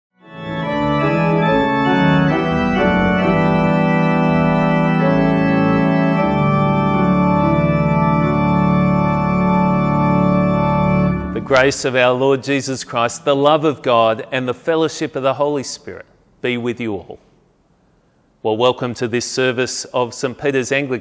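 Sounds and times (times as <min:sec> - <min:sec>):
deep organ bass note: 0:00.2 - 0:12.2
church organ chords: 0:00.2 - 0:14.5.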